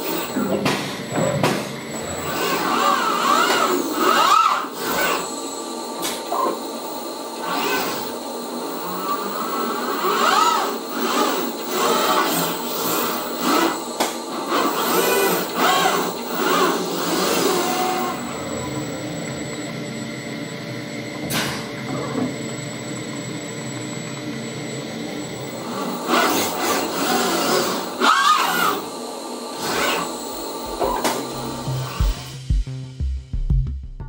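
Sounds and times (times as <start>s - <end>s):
robot arm servos whining: 0.0s - 5.4s, 6.0s - 19.5s, 25.2s - 32.3s.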